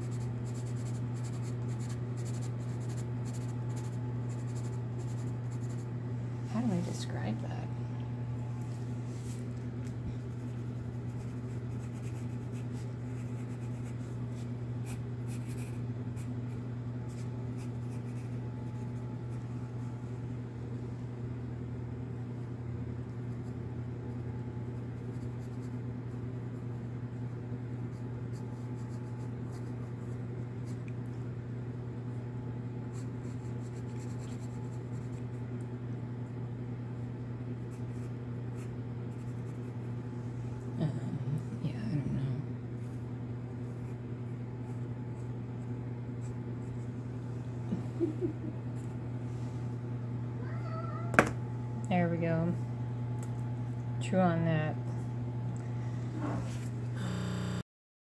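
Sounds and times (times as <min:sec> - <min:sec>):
pencil scratching on paper: 0:00.0 - 0:05.8, 0:10.3 - 0:14.1
low hum: 0:00.0 - 0:23.4, 0:28.5 - 0:57.6.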